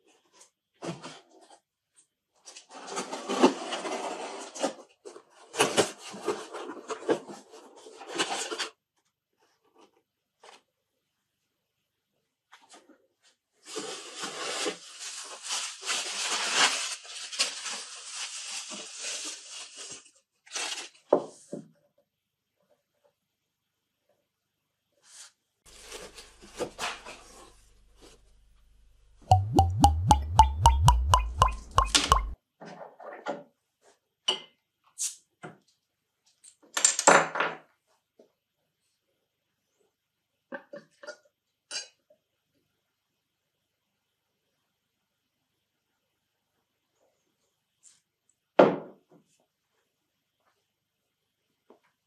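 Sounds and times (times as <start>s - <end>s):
bubble wrap crinkling: 14.0s - 20.9s, 25.7s - 27.2s
glass bottle knocking on table: 29.3s - 32.4s.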